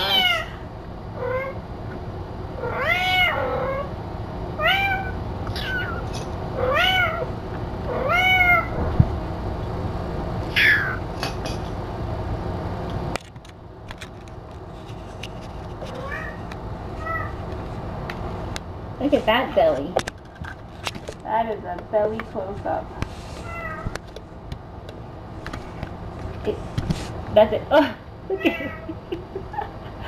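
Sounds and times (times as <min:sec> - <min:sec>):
kitten meowing: 0:00.0 - 0:00.5, 0:02.6 - 0:03.9, 0:04.6 - 0:07.3, 0:08.0 - 0:08.7
steady background noise: 0:00.0 - 0:30.0.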